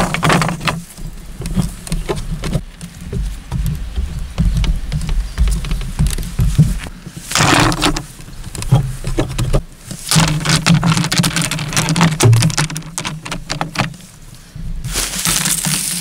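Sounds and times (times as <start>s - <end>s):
stones clattering onto poles: 0.0s - 2.6s, 7.4s - 14.0s, 14.9s - 16.0s
rocks thumping on wooden poles: 0.0s - 14.1s, 14.9s - 16.0s.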